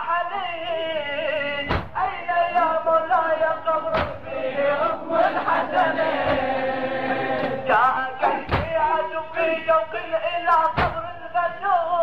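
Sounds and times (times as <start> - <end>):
men chanting together: 2.0 - 11.1.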